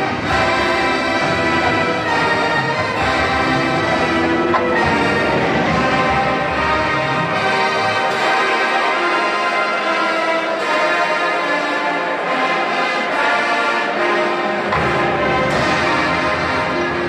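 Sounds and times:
low bass parts: 0.0s - 8.2s
marching band playing: 0.0s - 17.0s.

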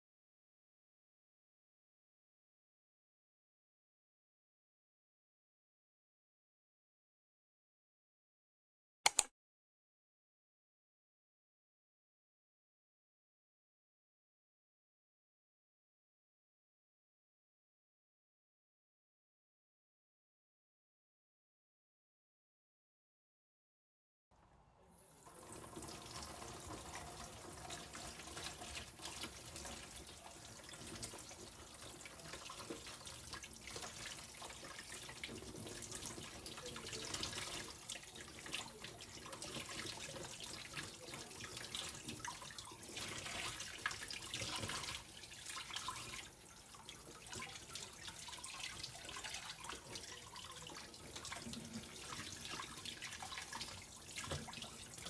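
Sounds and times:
tap water splashing in sink: 25.2s - 55.0s.

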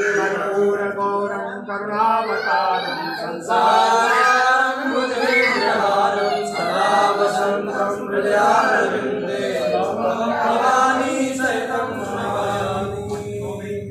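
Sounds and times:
group singing devotional chant: 0.0s - 13.9s.

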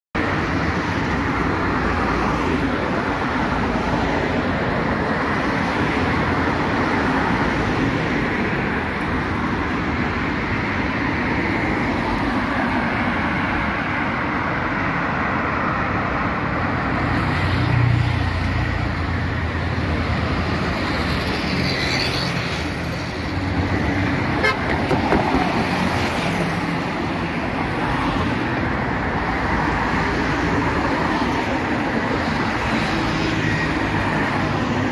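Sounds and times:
road traffic passing: 0.2s - 34.9s
car horns: 24.3s - 25.0s.

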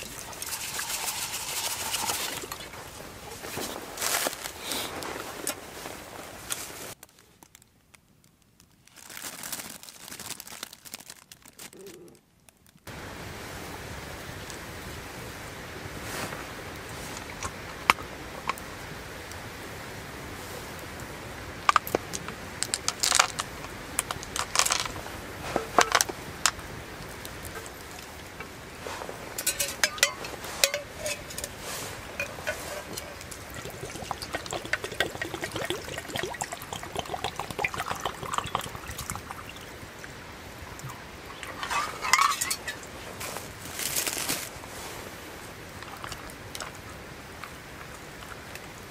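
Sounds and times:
water pouring into tin: 0.0s - 3.0s, 29.3s - 40.2s.

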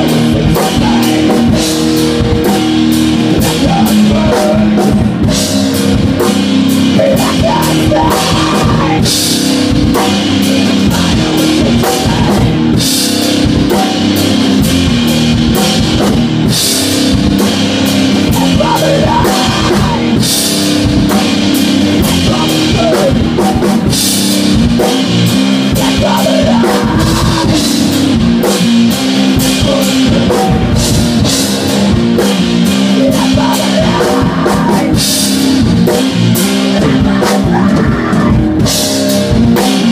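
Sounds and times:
rock band playing: 0.0s - 39.9s.

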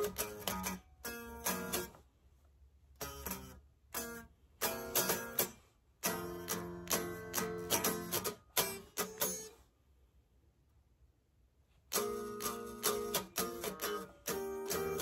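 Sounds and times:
electric guitar strumming chords: 0.0s - 1.9s, 3.0s - 9.5s, 11.9s - 15.0s.

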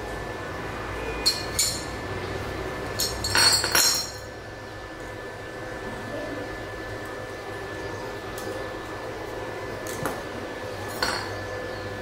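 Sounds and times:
steel tubing clinking on tile: 1.2s - 1.9s, 3.0s - 4.3s.

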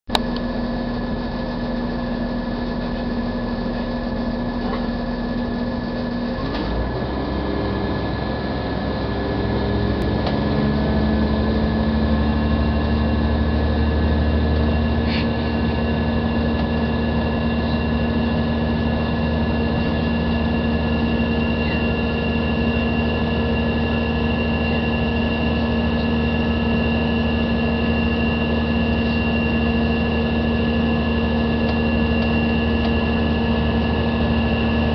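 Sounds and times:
train carriage running hum: 0.1s - 34.9s.

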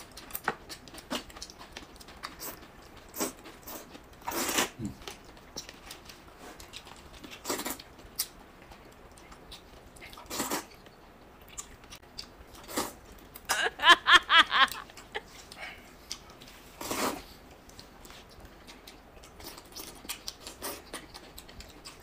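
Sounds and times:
chewing: 0.0s - 13.5s, 14.7s - 22.0s
slurping noodles: 2.4s - 5.0s, 10.2s - 10.7s, 12.6s - 13.0s, 16.8s - 17.3s.

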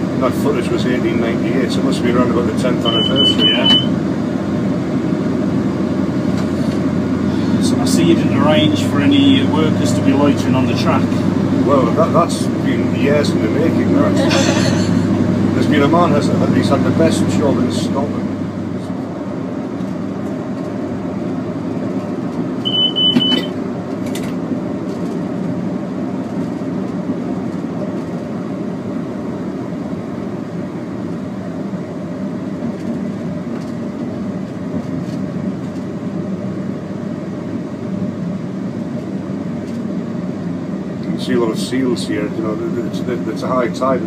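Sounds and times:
diesel train running noise: 0.0s - 44.0s
short high beep: 2.8s - 3.9s, 22.6s - 23.6s.

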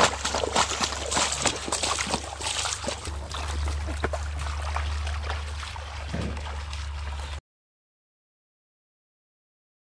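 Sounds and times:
fish splashing in water: 0.0s - 7.4s
low rumble: 0.1s - 7.4s.

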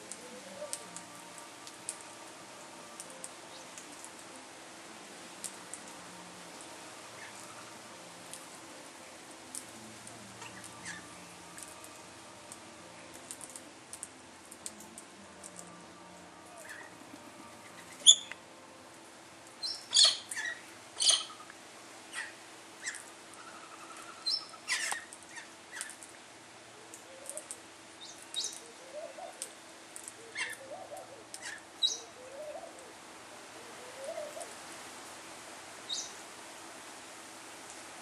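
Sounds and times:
birds chirping and squeaking: 17.8s - 18.4s, 19.7s - 21.4s, 22.1s - 26.0s.

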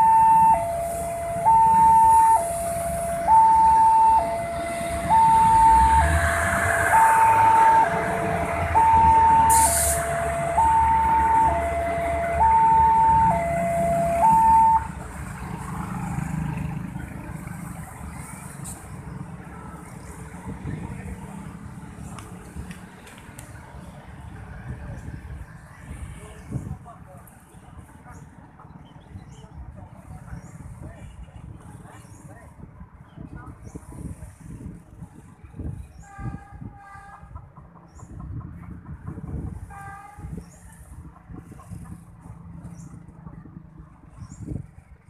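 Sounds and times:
level crossing two-tone alarm: 0.0s - 14.9s
train rumbling past: 0.0s - 23.0s.

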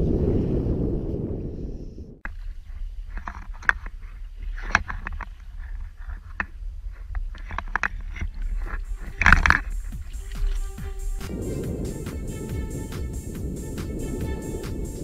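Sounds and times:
waves lapping against boat hull: 2.3s - 14.9s
water splashes: 7.4s - 15.0s.

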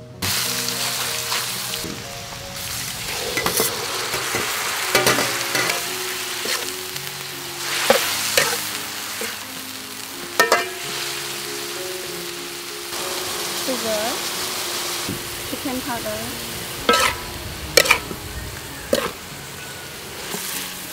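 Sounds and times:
food sizzling in a wok: 0.0s - 20.9s
soft background music: 0.0s - 20.9s
utensil scraping wok: 0.3s - 9.5s, 10.2s - 11.4s, 13.0s - 20.9s
clanks against wok: 3.4s - 6.7s, 7.9s - 8.6s, 10.4s - 10.8s, 16.9s - 17.2s.

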